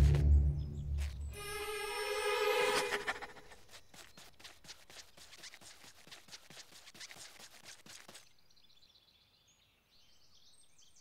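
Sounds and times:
cartoon footsteps on dirt: 0.0s - 1.4s, 2.7s - 8.3s.

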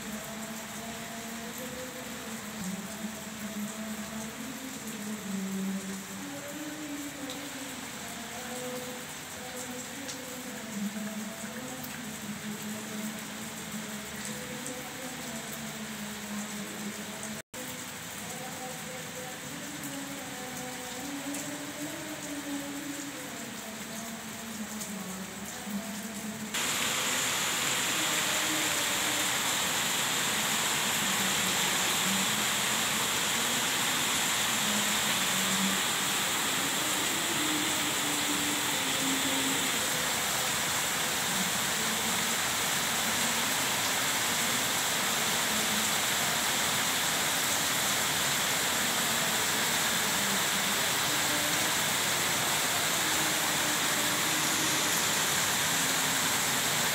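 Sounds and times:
steady rushing hiss: 26.5s - 56.9s.

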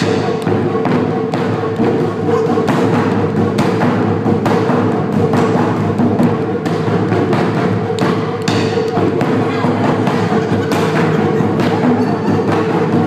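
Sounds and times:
barrel drums struck hard: 0.0s - 13.0s
rapid small drum pattern: 0.0s - 13.0s.

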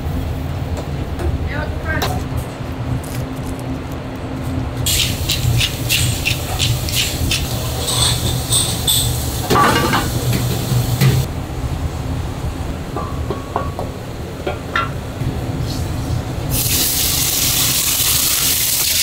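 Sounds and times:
equipment hum: 0.0s - 19.0s
clatter of utensils and dishes: 5.0s - 11.2s.

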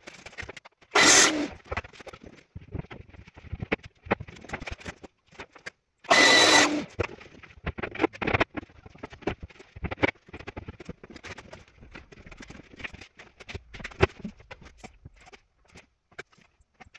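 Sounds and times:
power tool running: 1.0s - 1.6s, 6.1s - 7.0s.

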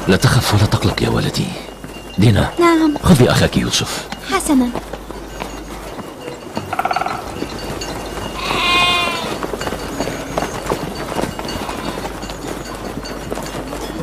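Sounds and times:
outdoor background hiss: 0.0s - 12.0s
sheep bleating: 8.4s - 9.4s.

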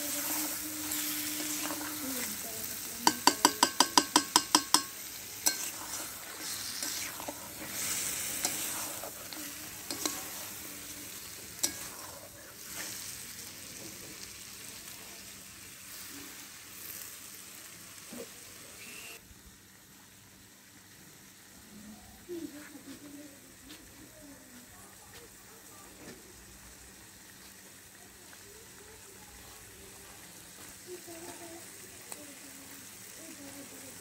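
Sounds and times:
curry sizzling in oil: 0.0s - 34.0s
metal spatula clattering on pan: 3.0s - 5.8s, 11.6s - 12.1s.

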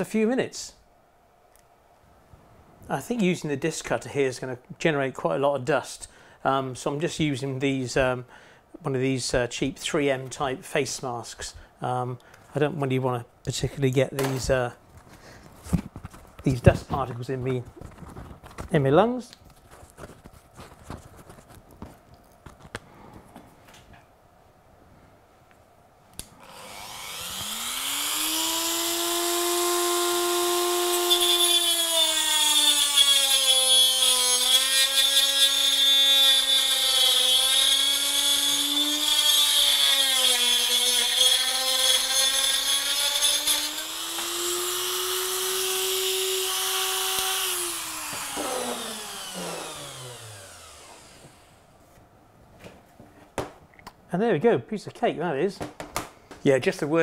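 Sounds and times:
rotary tool whining: 26.3s - 51.6s.

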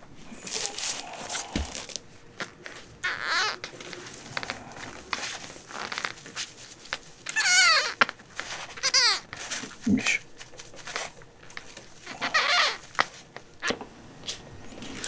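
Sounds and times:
kitten mewing: 3.0s - 3.7s.

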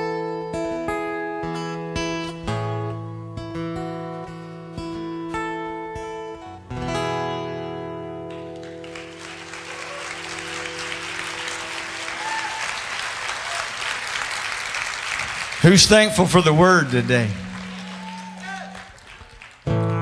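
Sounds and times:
acoustic guitar strumming: 0.0s - 12.3s, 15.6s - 19.0s, 19.6s - 20.0s
audience applauding: 8.3s - 20.0s.

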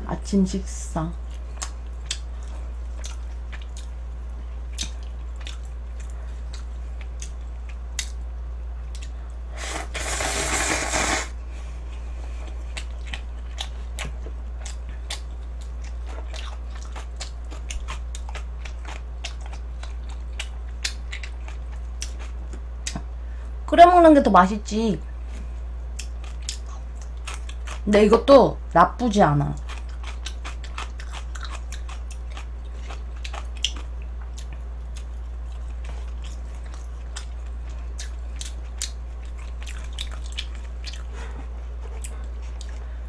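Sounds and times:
steady low hum: 0.0s - 43.0s
chewing and mouth clicks: 1.3s - 9.3s, 12.4s - 23.1s, 25.9s - 27.8s, 29.6s - 43.0s
loud slurp of noodles: 9.6s - 11.4s.

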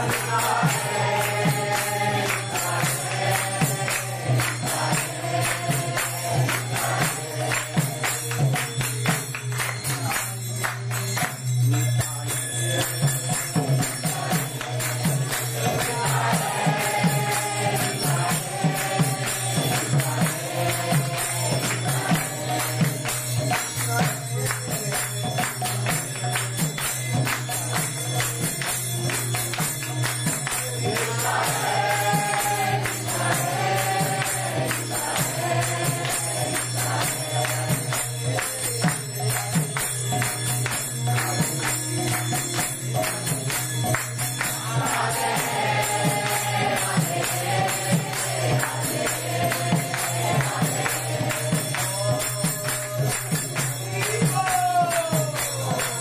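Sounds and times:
group devotional chanting: 0.0s - 56.0s
small hand cymbals jingling: 0.0s - 56.0s.

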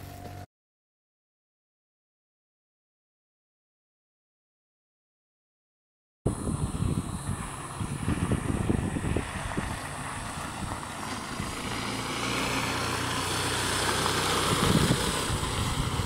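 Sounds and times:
motor running: 6.3s - 16.0s
wind rumble on microphone: 6.3s - 16.0s.

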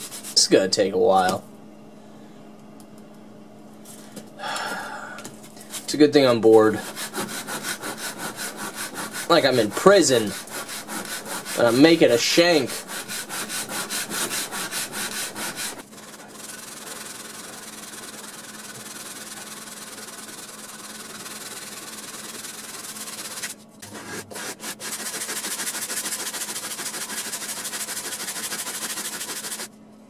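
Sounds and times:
metal card rasping on sandpaper: 6.6s - 29.7s.

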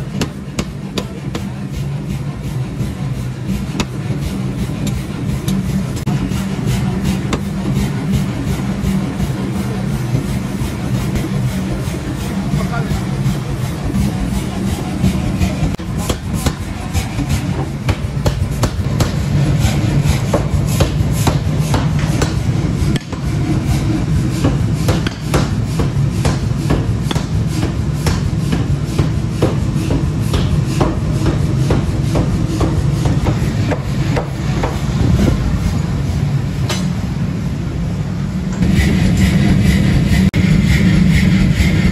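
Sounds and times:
sledgehammer striking steel bar: 0.1s - 1.5s, 15.8s - 19.4s, 20.0s - 23.4s, 24.4s - 34.8s, 36.6s - 37.0s.

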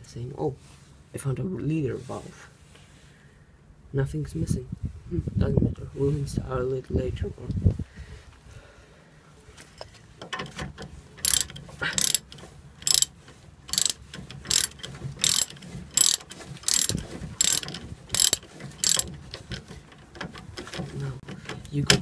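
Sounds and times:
ratchet wrench clicking: 11.2s - 19.1s.

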